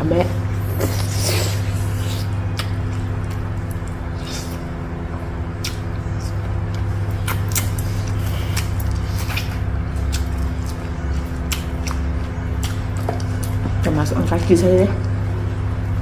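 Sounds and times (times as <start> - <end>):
low mechanical hum: 0.0 - 16.0
chewing and wet mouth clicks: 2.5 - 4.0, 5.6 - 13.6.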